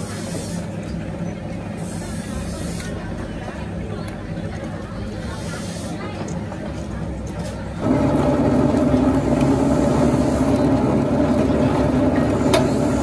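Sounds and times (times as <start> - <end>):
vehicle engine running: 7.8 - 13.0.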